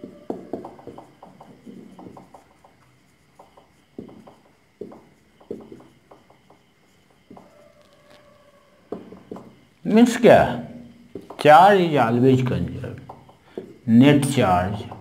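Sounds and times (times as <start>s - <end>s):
marker writing on whiteboard: 0.0s - 8.1s.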